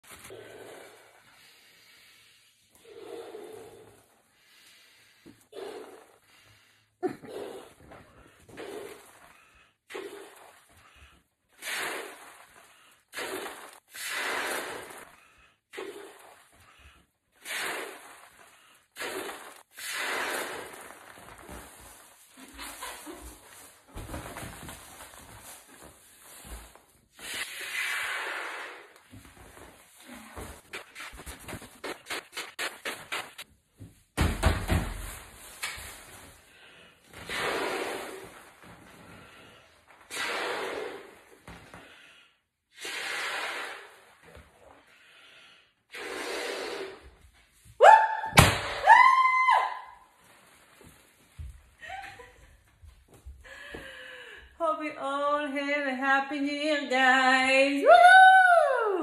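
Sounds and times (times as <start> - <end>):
breath puffs into balloon: 0.0 - 33.5, 35.1 - 47.6
balloon rubbing squeaks: 19.0 - 24.5, 27.2 - 33.4
quick breaths: 53.3 - 54.6.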